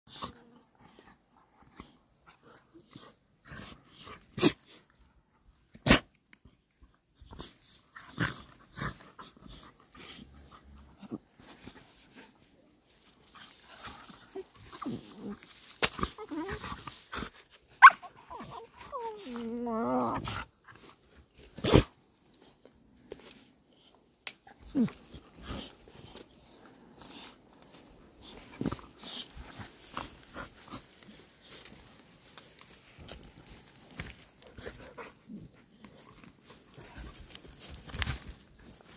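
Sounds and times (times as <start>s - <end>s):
dog digging in dirt: 24.4s - 38.9s.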